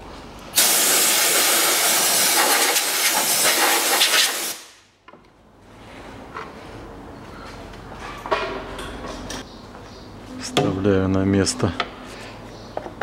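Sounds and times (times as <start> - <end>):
compressed air blow gun hissing: 0.6 - 4.8.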